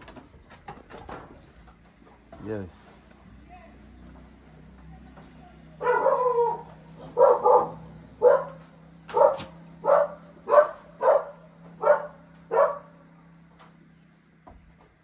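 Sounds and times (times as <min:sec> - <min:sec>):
dog barking: 0:05.8 - 0:12.9.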